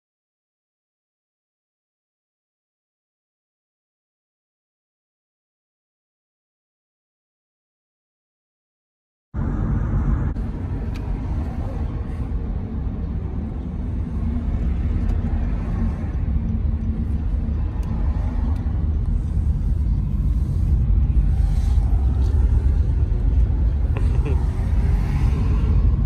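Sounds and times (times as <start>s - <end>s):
car road and engine rumble: 9.4s - 26.0s.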